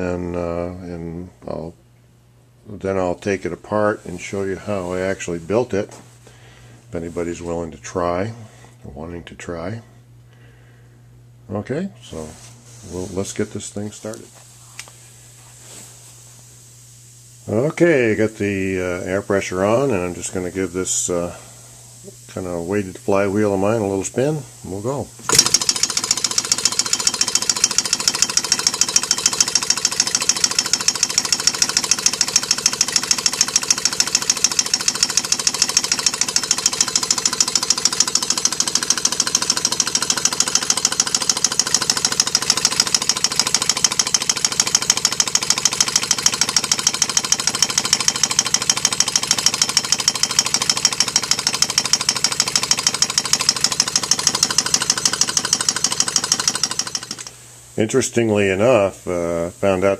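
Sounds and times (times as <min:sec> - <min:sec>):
engine clatter: 0:25.3 - 0:57.3.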